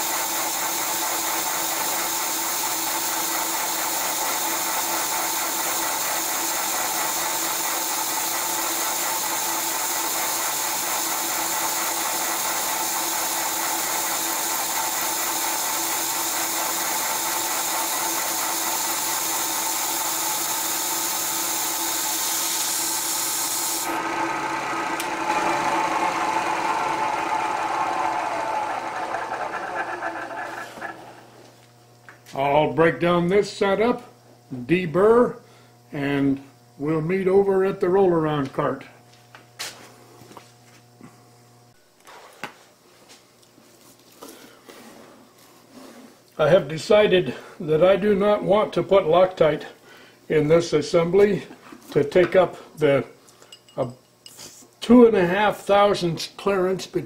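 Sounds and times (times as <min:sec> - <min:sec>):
milling machine cutting metal: 0:00.0 - 0:31.2.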